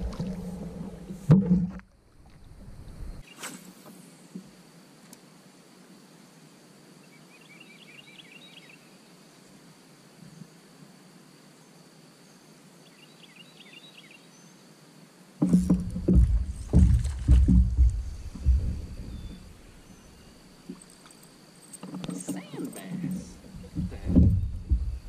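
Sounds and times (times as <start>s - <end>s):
songbird chirping: 7.0s - 9.6s, 11.6s - 14.7s, 15.4s - 25.0s.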